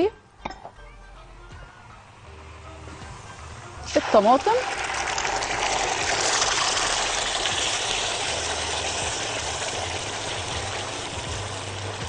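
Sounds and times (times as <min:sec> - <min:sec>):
sauce sizzling in hot oil: 0:03.8 - 0:12.0.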